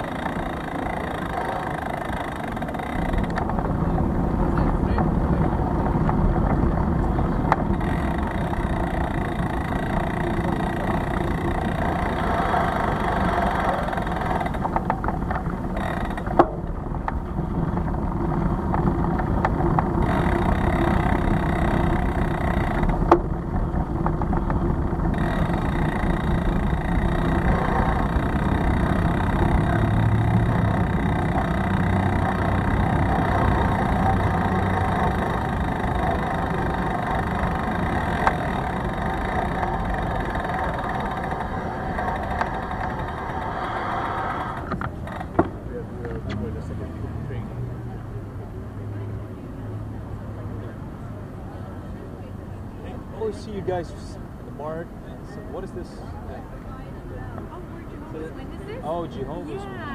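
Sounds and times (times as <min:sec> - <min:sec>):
bicycle rolling over paving: 0:00.0 - 0:45.7.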